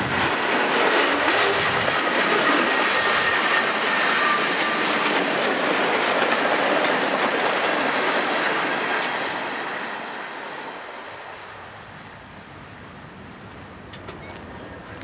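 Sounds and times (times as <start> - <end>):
freight cars rolling on rails: 0.0 - 15.0
thin wheel squeal: 2.9 - 5.0.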